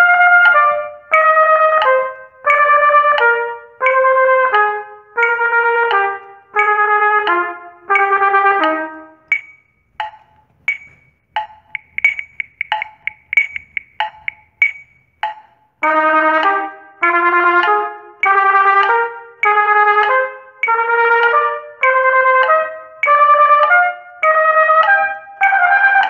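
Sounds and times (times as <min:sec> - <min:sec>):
trumpet playing: 0:00.0 - 0:09.3, 0:15.8 - 0:26.0
metronome ticking: 0:00.0 - 0:26.0.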